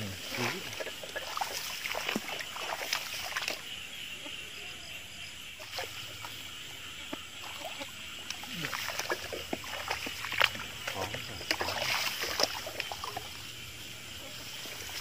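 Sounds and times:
water splashes and sloshes: 0:00.0 - 0:04.3, 0:05.4 - 0:15.0
chorus of night insects: 0:00.0 - 0:15.0
grass rustling: 0:05.6 - 0:15.0.

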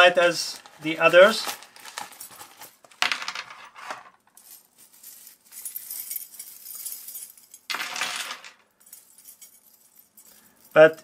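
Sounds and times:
plastic bag crinkling: 0:00.5 - 0:03.0
metal chains jingling: 0:01.2 - 0:02.8, 0:04.3 - 0:11.0.

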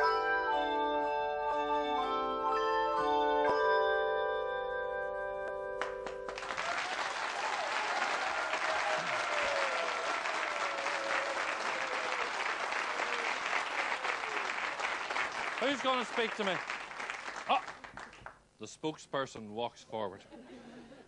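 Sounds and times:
audience applauding: 0:05.8 - 0:18.4.

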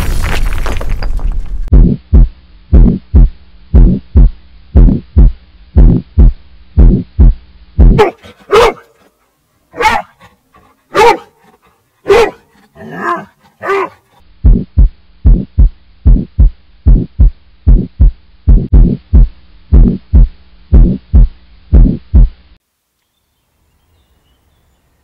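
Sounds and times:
heartbeat-like double thump: 0:01.7 - 0:08.0, 0:14.4 - 0:22.4
dog barking: 0:08.0 - 0:09.1, 0:09.7 - 0:14.1.

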